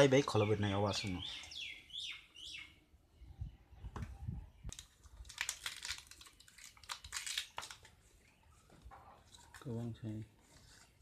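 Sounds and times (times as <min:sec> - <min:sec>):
banana leaves rustling and tearing: 0:04.7 - 0:08.4.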